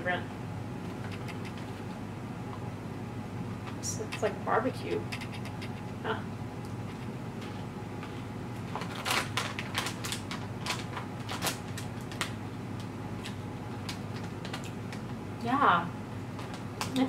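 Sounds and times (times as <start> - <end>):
steady low hum: 0.0 - 17.0
rice cracker crunching: 8.6 - 12.4.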